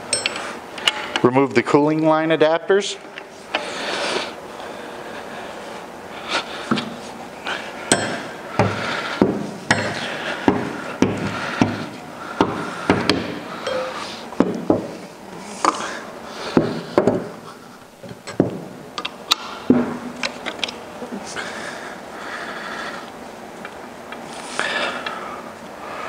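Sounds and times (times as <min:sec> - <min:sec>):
metal tools clinking and knocking: 0:00.1 - 0:01.2, 0:13.6 - 0:14.0.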